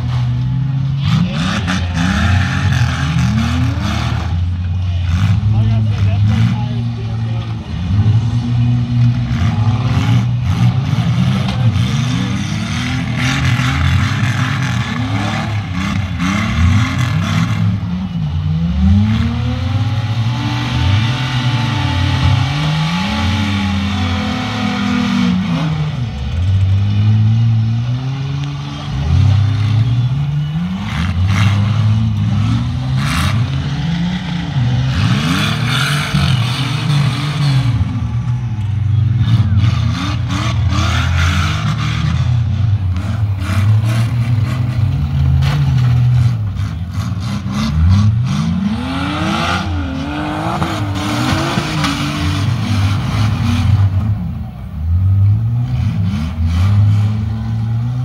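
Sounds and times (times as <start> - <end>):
car engines revving hard: 0.0 - 58.0.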